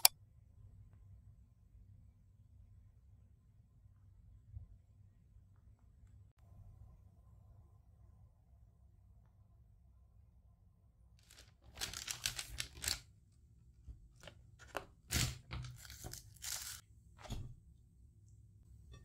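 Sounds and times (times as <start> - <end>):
paper bag rustling: 11.2 - 13.0, 14.6 - 16.8
plastic tubs handled: 13.9 - 17.6.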